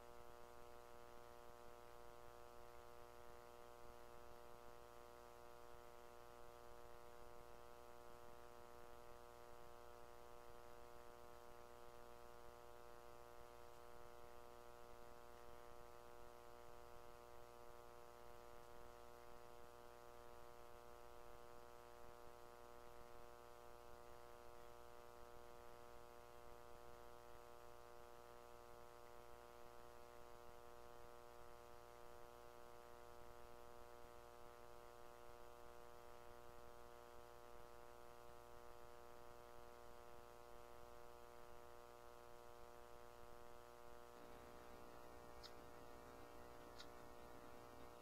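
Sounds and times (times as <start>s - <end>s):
faint electronic hum: 0.0s - 48.0s
faint clicks: 44.5s - 48.0s.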